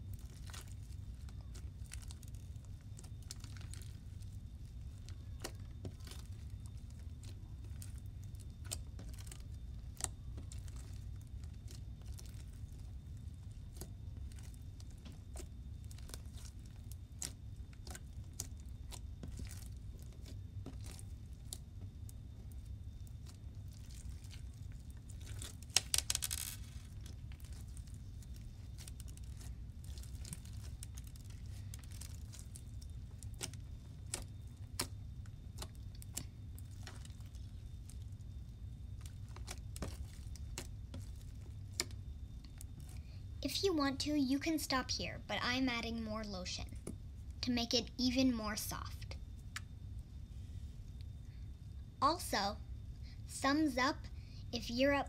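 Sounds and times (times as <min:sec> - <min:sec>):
slime clicks and crackles: 0:00.0 - 0:43.0
steady low hum: 0:00.0 - 0:55.0.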